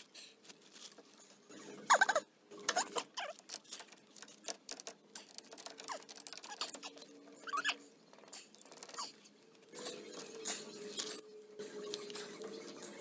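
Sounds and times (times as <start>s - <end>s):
short squeaks: 5.6s - 9.3s.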